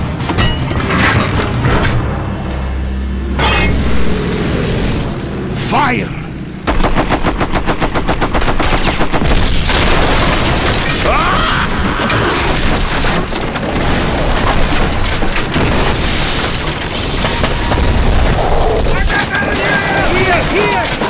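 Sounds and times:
booming explosions: 6.6s - 20.5s
machine-gun burst: 6.7s - 10.9s.

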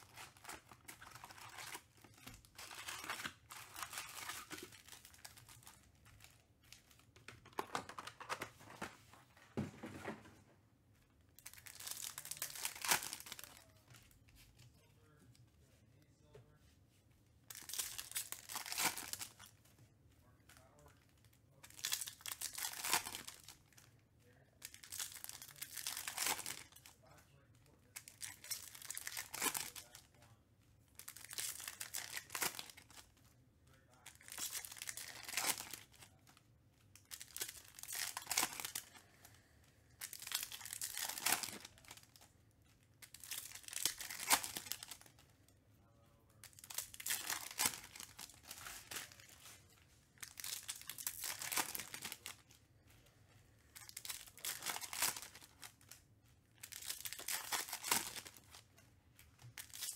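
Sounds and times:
foil wrappers being torn open: 0.0s - 5.7s, 31.0s - 33.0s, 34.2s - 36.0s, 37.0s - 38.9s, 40.0s - 42.2s, 43.0s - 45.1s, 46.4s - 49.3s, 50.2s - 52.4s, 53.8s - 56.0s, 56.6s - 58.6s, 59.4s - 59.9s.

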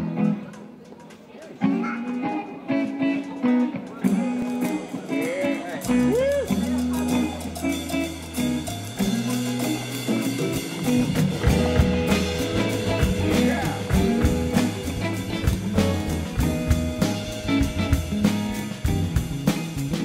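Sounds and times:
rock band playing: 0.0s - 20.0s
steady drum beat: 4.2s - 20.0s
moving bass line: 5.8s - 20.0s.

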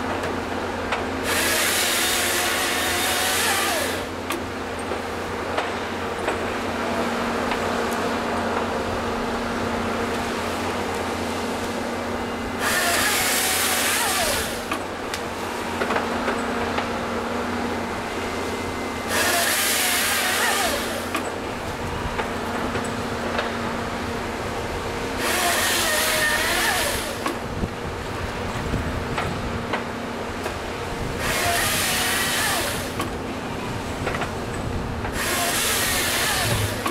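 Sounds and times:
excavator diesel engine running: 0.0s - 36.9s
hydraulic chain saw cutting: 1.0s - 5.0s, 11.6s - 16.4s, 18.3s - 21.8s, 25.1s - 27.5s, 30.4s - 33.2s, 35.1s - 36.9s
knocks of log feeding: 35.0s - 36.9s.

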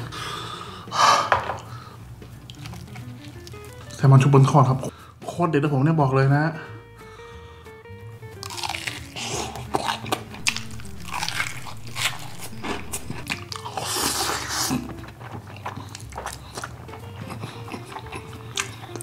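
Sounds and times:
soft background music: 0.0s - 19.0s
chewing: 2.4s - 3.8s, 8.4s - 19.0s
crunching bites into fried fish: 8.4s - 19.0s
slurping noodles: 9.0s - 19.0s.

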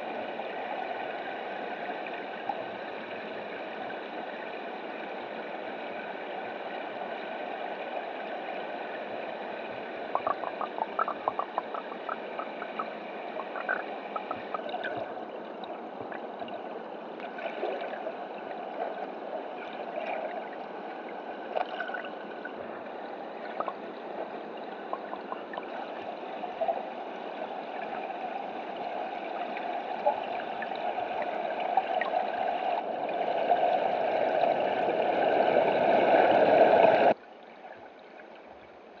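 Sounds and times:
small underwater clicks: 10.1s - 16.2s, 23.5s - 26.1s.

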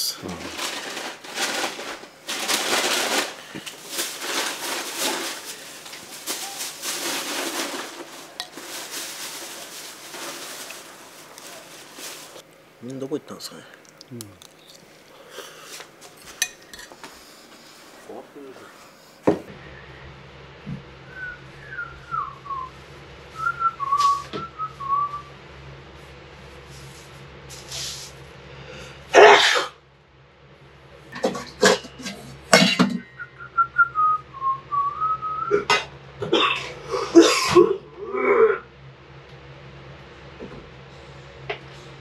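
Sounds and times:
steady low hum: 0.0s - 42.0s
person whistling a tune: 23.4s - 25.2s, 33.2s - 35.6s.

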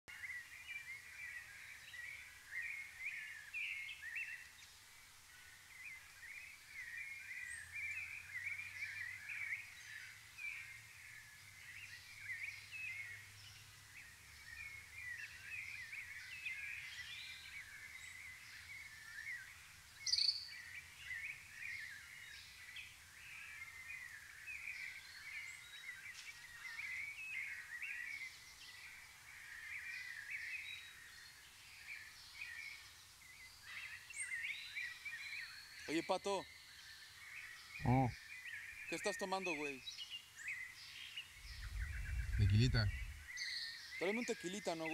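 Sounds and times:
birds chirping: 32.0s - 44.9s.

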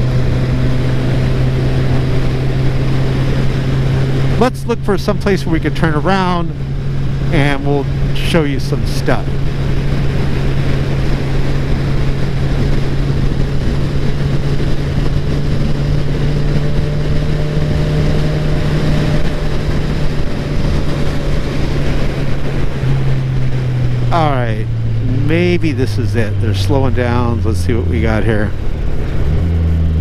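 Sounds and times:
motorcycle engine running: 0.0s - 30.0s
wind rushing over microphone: 0.0s - 30.0s.

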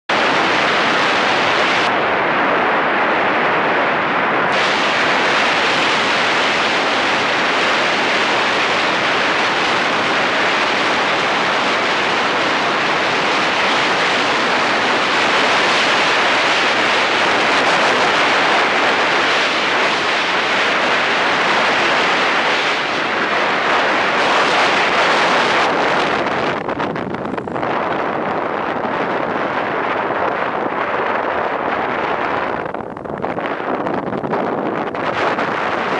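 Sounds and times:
wind buffeting microphone: 0.1s - 35.9s.

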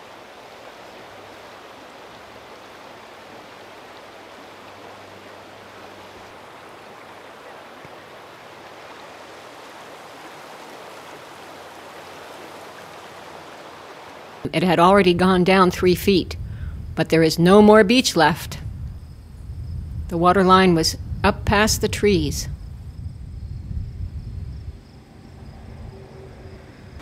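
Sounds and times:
river rushing: 0.0s - 14.5s.

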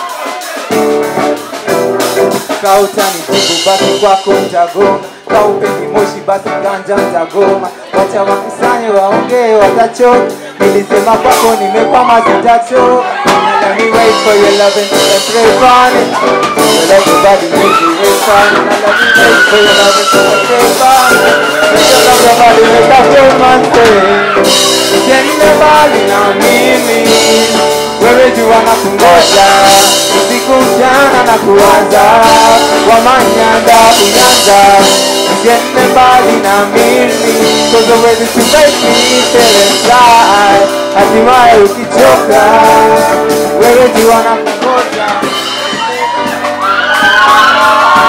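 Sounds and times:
drum kit: 0.0s - 48.0s
electric guitar: 0.0s - 48.0s
person singing: 0.0s - 48.0s.

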